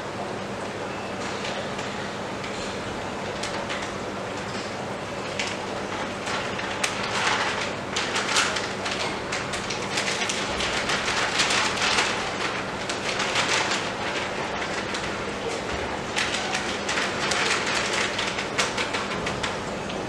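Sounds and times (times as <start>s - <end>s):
plastic packet crinkling: 5.2s - 19.7s.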